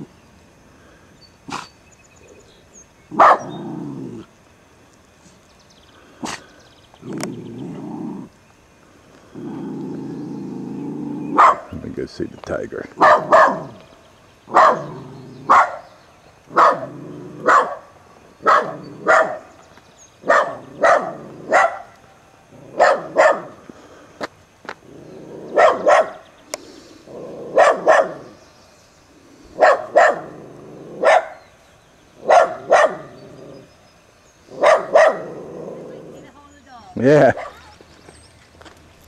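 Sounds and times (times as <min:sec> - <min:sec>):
dog barking: 0:03.2 - 0:03.6, 0:11.3 - 0:11.7, 0:13.0 - 0:13.8, 0:14.5 - 0:15.8, 0:16.5 - 0:19.5, 0:20.2 - 0:22.0, 0:22.7 - 0:23.6, 0:25.5 - 0:26.2, 0:27.5 - 0:28.4, 0:29.6 - 0:30.4, 0:31.0 - 0:31.4, 0:32.2 - 0:33.1, 0:34.5 - 0:35.4, 0:37.2 - 0:37.7.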